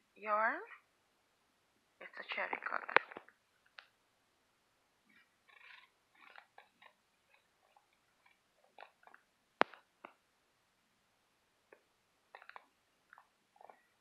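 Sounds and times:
small clicks: 2.5s - 3.9s, 11.7s - 13.8s.

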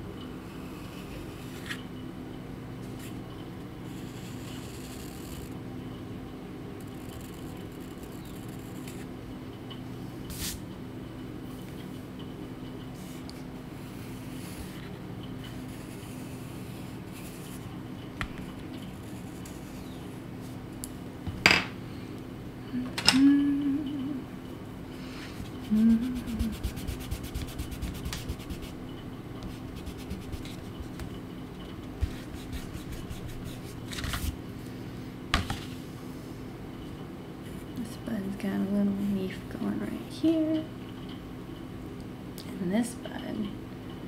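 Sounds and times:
low steady hum: 0.0s - 44.0s
pencil scratching on paper: 15.5s - 17.6s, 18.9s - 20.0s, 26.1s - 28.8s, 29.4s - 31.0s, 32.0s - 33.7s
hand rubbing paper: 25.5s - 28.8s, 29.4s - 31.2s, 32.0s - 34.4s.

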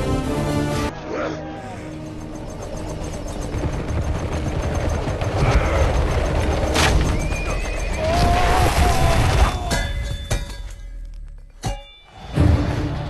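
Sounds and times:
rumble of hooves and wheels: 1.1s - 8.6s.

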